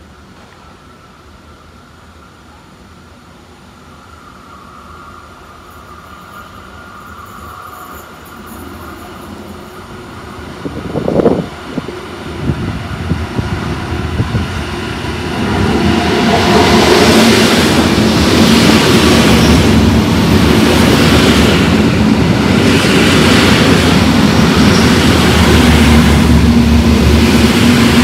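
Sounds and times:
train wheels rumbling on rail: 2.9 - 28.0.

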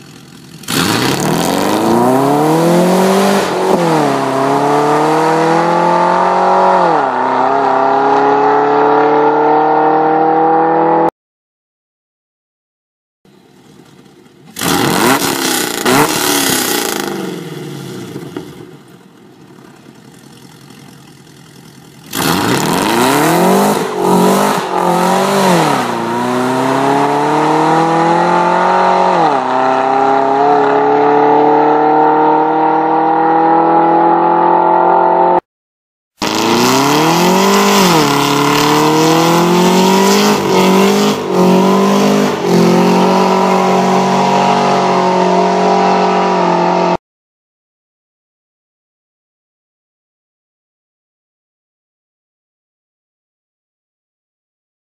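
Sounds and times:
car engine accelerating hard: 0.0 - 11.1, 14.5 - 18.3, 21.6 - 35.4, 36.2 - 47.0
engine revving: 0.0 - 11.1, 14.5 - 18.6, 22.0 - 35.4, 36.2 - 47.0.

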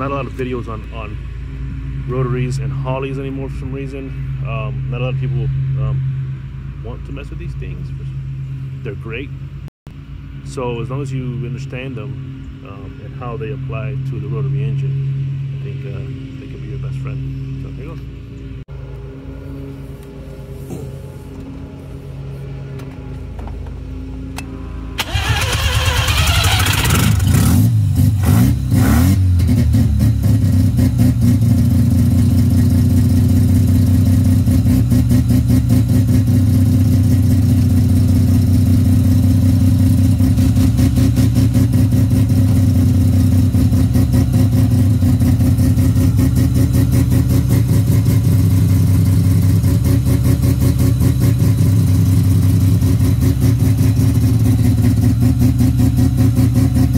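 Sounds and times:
engine pulsing idle: 22.8 - 27.4
rotary engine starting and revving: 24.4 - 56.9.

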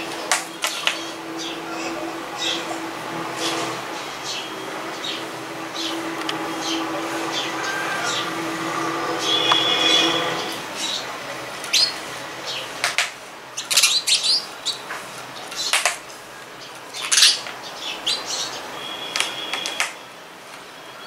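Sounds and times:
sparrows chirping: 0.0 - 12.8, 13.5 - 20.1.

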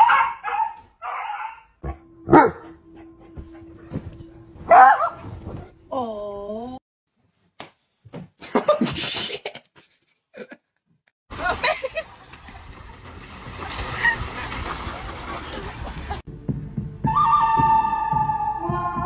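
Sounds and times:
dogs splashing in water: 11.3 - 16.3.

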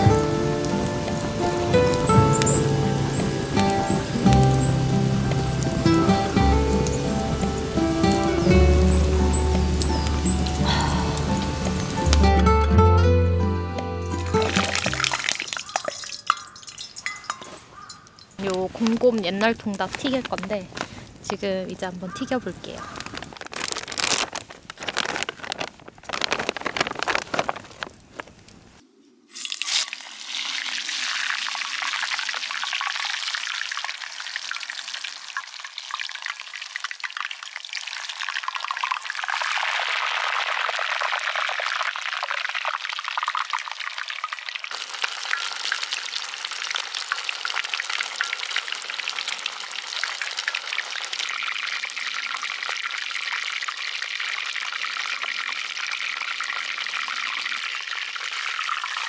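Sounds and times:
chicken sizzling in hot oil: 0.0 - 12.3, 14.1 - 18.4, 29.3 - 59.0.

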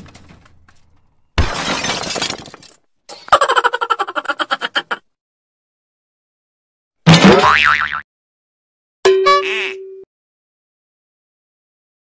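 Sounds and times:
glass breaking crash: 1.4 - 2.8.

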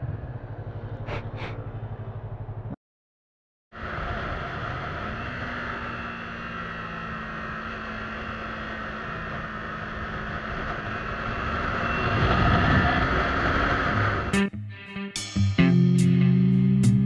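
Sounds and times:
wind and road noise: 0.0 - 2.8, 3.7 - 14.4.

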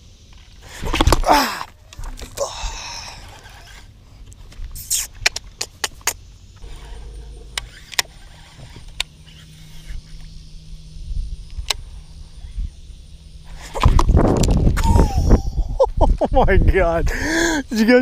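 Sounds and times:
steady low hum: 5.4 - 17.3
low rumble: 6.6 - 16.0.

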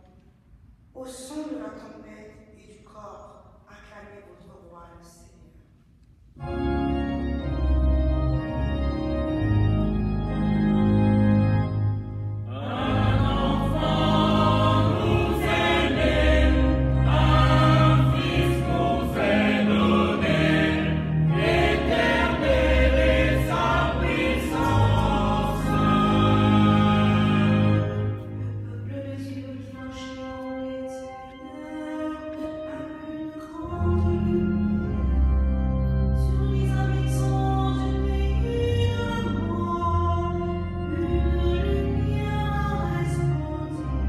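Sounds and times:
organ playing chords: 6.4 - 44.0
choir singing a hymn: 12.4 - 30.5.

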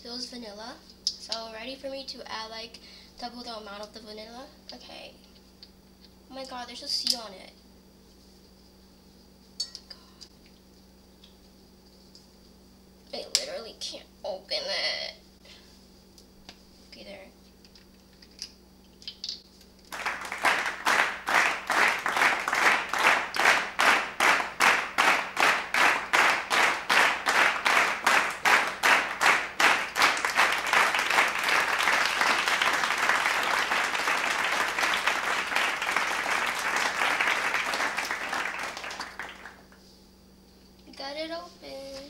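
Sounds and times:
crowd applause: 19.9 - 39.6
crowd clapping in unison: 19.9 - 39.7.

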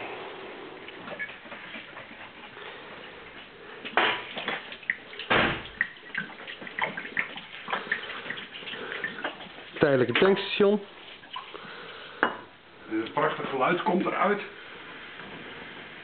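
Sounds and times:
running water: 0.0 - 16.0
glass bottles clinking: 12.2 - 12.5.

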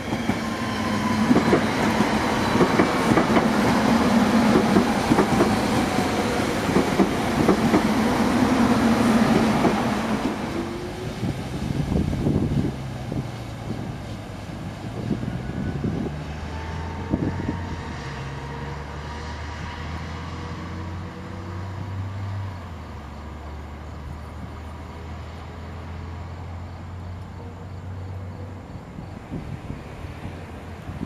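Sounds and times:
steady low train hum: 0.0 - 31.0
train wheels knocking over rail joints: 1.2 - 8.3.

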